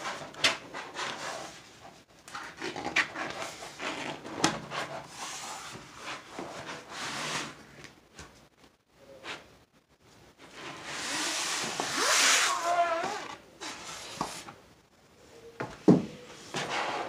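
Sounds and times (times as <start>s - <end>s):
canvas and plastic film rustling: 10.4s - 14.5s.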